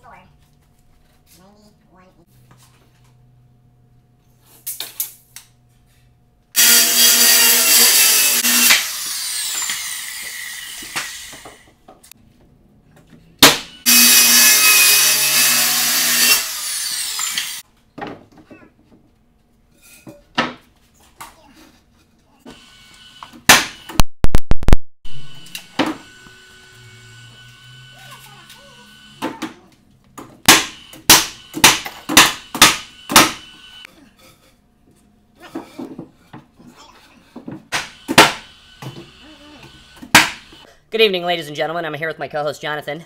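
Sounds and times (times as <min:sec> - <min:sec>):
power saw cutting plywood: 0:06.6 - 0:11.7, 0:13.5 - 0:17.6, 0:25.3 - 0:29.3, 0:30.6 - 0:33.9, 0:37.7 - 0:40.6
power tool sharp cracks: 0:08.4 - 0:10.0, 0:30.5 - 0:33.5, 0:37.7 - 0:38.5, 0:40.0 - 0:40.5.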